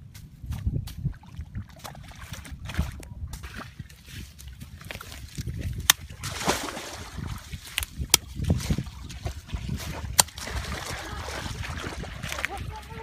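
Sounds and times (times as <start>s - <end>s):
machete chopping dry ground: 5.7s - 6.8s, 10.1s - 10.5s.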